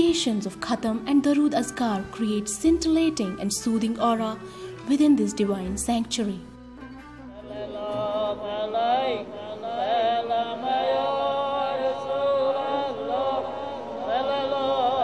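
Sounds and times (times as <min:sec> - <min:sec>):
men chanting together: 0:07.5 - 0:15.0.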